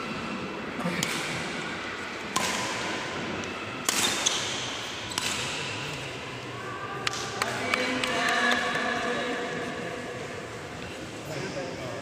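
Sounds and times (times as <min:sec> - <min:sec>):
racquet striking shuttlecock: 0:01.0 - 0:01.4, 0:02.2 - 0:06.1.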